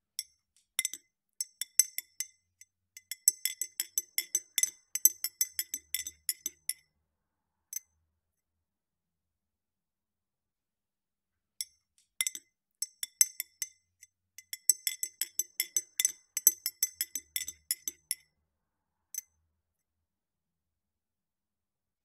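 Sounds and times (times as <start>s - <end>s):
spoon clinking in a glass: 3.0s - 6.8s, 11.6s - 13.8s, 14.4s - 18.3s.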